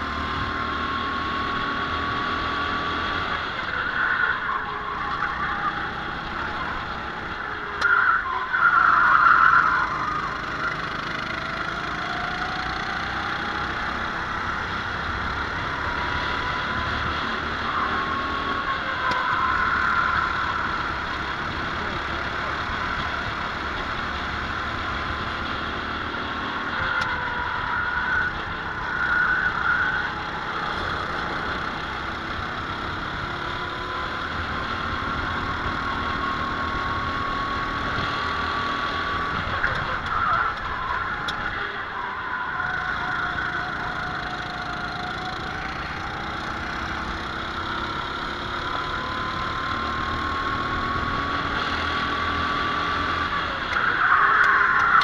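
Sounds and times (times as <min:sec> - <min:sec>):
racing kart engine revving: 0:00.0 - 0:55.0.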